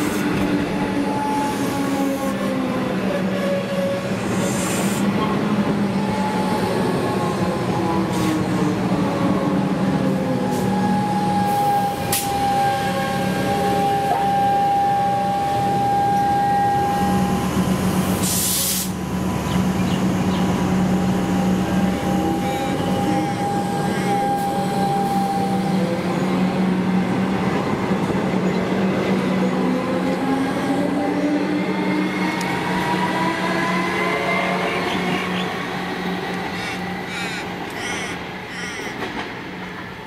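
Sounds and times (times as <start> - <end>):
train wheels on rails: 16.9 - 40.0
air hiss: 18.2 - 19.0.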